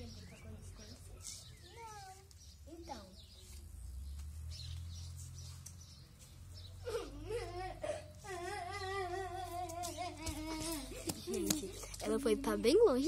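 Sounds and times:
wavering cry: 0:06.8 - 0:11.5.

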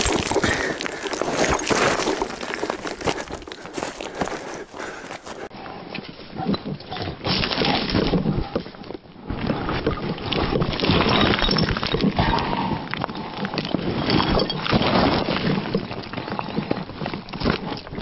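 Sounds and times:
boots crunching on loose stones: 0:00.0 - 0:05.5.

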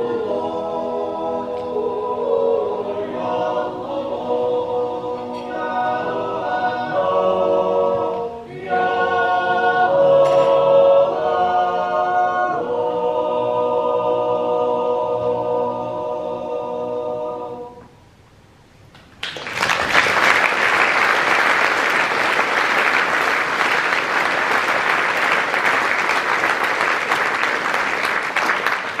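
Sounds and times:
men's choir holding chord: 0:00.0 - 0:17.9
audience applause: 0:19.2 - 0:29.0.

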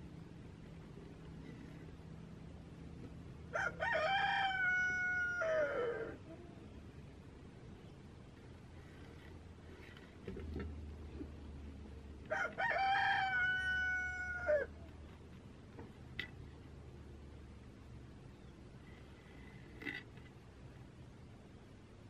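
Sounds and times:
faint low hum: 0:00.0 - 0:22.0
rooster crowing: 0:03.5 - 0:06.2, 0:12.3 - 0:14.8.

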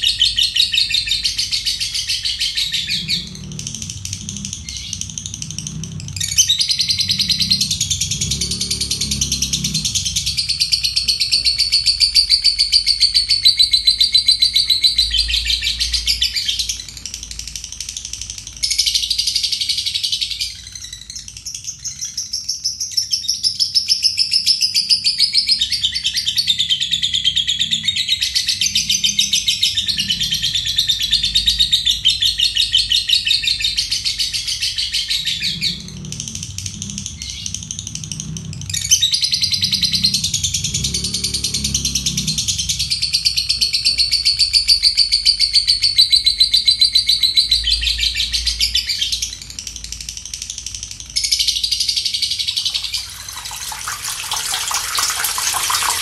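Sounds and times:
bird chattering trill: 0:00.0 - 0:37.6.

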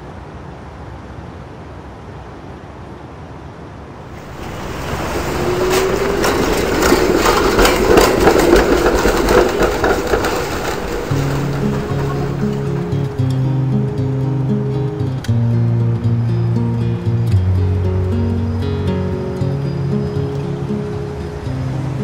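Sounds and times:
street ambience: 0:00.2 - 0:22.0
wheels clicking and rattling: 0:04.0 - 0:14.0
streetcar approaching on rails: 0:04.0 - 0:22.0
rising whine: 0:04.1 - 0:13.6.

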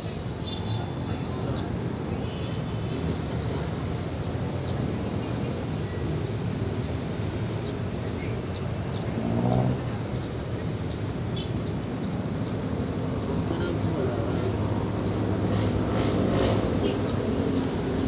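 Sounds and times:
low rumble of city traffic: 0:00.0 - 0:18.0.

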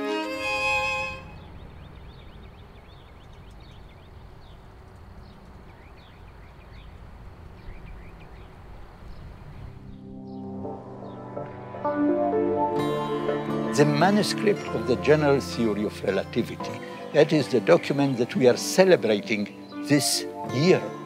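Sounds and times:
birds chirping: 0:00.0 - 0:11.4, 0:12.8 - 0:21.0
low background rumble: 0:00.4 - 0:10.0.

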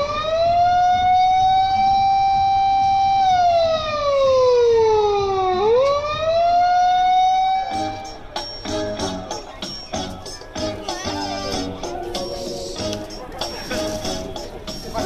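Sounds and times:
warning siren: 0:00.0 - 0:08.2
music with jingling percussion: 0:07.8 - 0:15.0.

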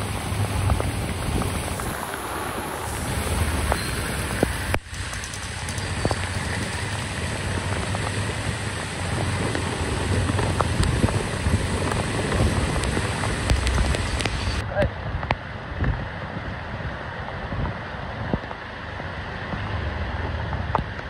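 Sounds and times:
heavy rain pouring: 0:00.0 - 0:14.6
vehicles splashing through water: 0:00.0 - 0:14.6
wind on microphone: 0:00.0 - 0:21.0.

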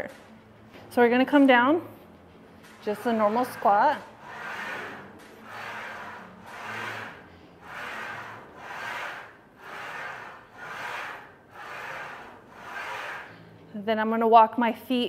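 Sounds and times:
bar sliding on guide rails: 0:02.6 - 0:13.5.

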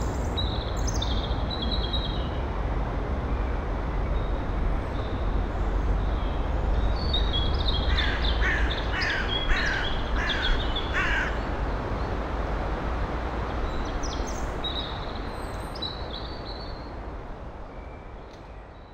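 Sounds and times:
crow cawing: 0:07.9 - 0:11.4.

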